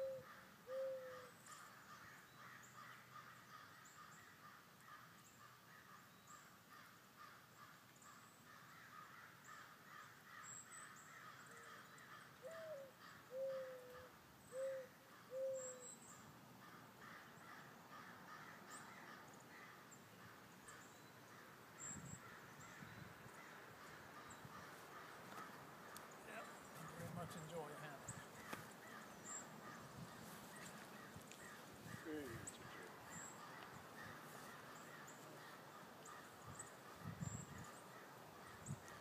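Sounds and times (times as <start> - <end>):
faint outdoor background: 0.0 - 39.0
crow cawing: 0.2 - 5.0, 6.7 - 7.8, 8.5 - 14.1, 16.6 - 20.3, 22.2 - 26.1, 28.3 - 37.0.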